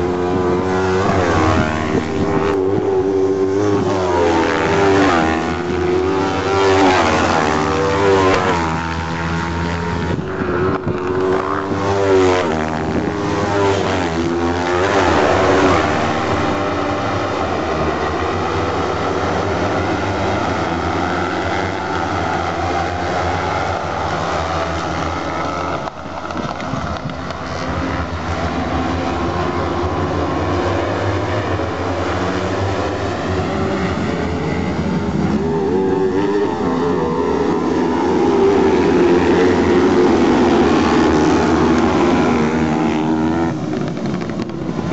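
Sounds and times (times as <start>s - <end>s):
racing buggy engines revving: 0.0s - 44.9s.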